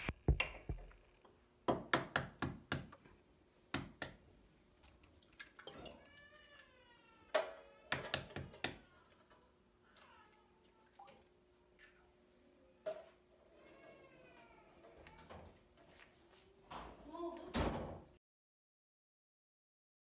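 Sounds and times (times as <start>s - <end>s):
kitchen utensils clicking and knocking: 7.4s - 9.5s.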